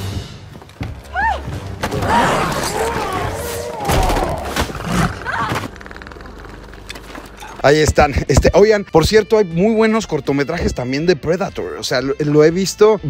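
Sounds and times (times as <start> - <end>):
action film music: 0.0 - 13.0.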